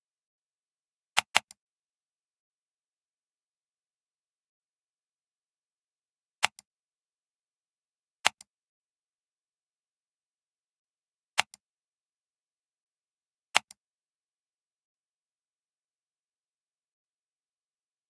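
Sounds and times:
computer mouse clicks: 1.2 - 1.6, 6.4 - 6.7, 8.2 - 8.5, 11.4 - 11.6, 13.5 - 13.8.

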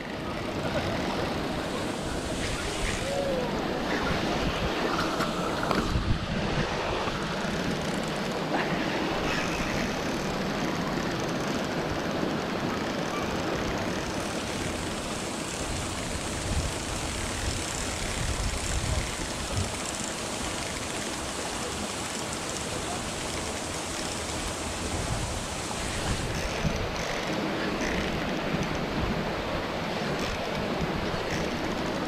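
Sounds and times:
wind rushing on microphone: 1.0 - 7.8, 15.5 - 19.9, 24.8 - 27.1.

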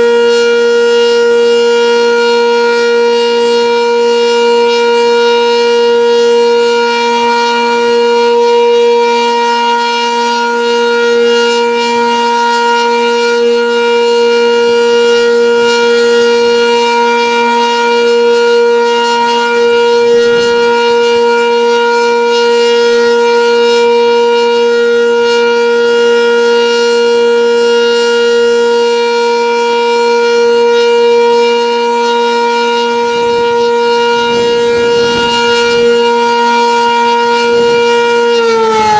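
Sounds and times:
warning siren steady tone: 0.0 - 38.9
wind buffeting microphone: 19.9 - 21.3, 33.0 - 38.9.

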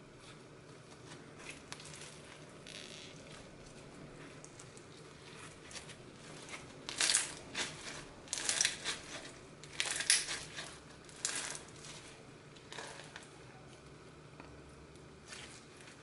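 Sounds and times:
foam bead slime crackling: 0.2 - 13.3.

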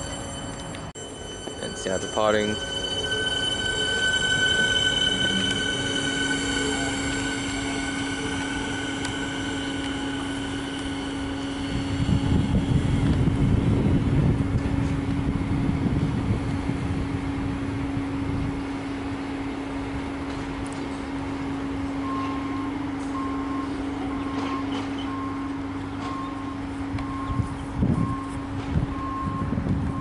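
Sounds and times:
electric train motor whine: 0.0 - 30.0
low hum: 0.0 - 30.0
low rumble: 2.4 - 22.0.

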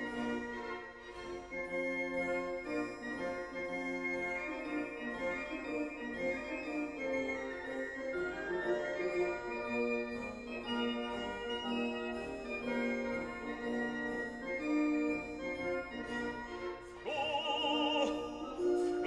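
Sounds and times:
operatic singing voice: 17.0 - 19.0.

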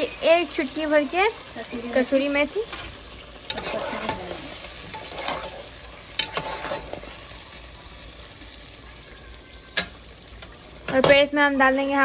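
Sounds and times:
curry sizzling in oil: 0.0 - 12.0
spoon stirring and scraping pot: 2.7 - 7.3.

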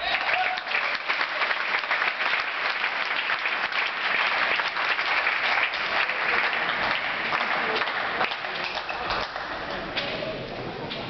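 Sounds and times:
spectators applauding: 0.0 - 10.0.

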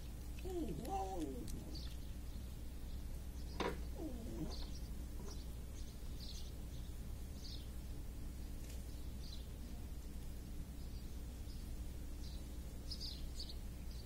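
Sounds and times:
small birds chirping: 0.0 - 14.0
low cooing call: 0.4 - 2.0, 3.9 - 4.8.

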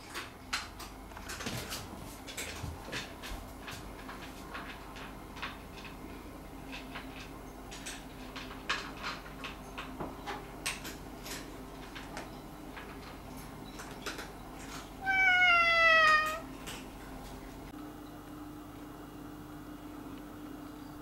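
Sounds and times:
cat meowing: 15.0 - 16.5.

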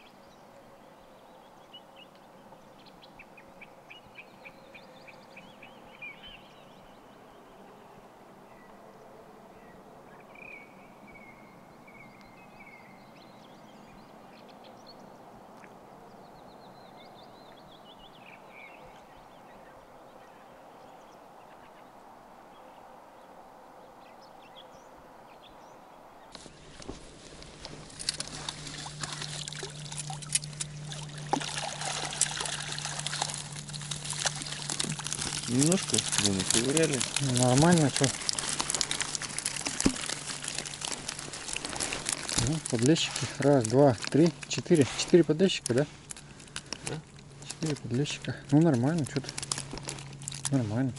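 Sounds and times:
steady low hum: 26.0 - 50.9
water splashing and dripping: 26.3 - 50.6.

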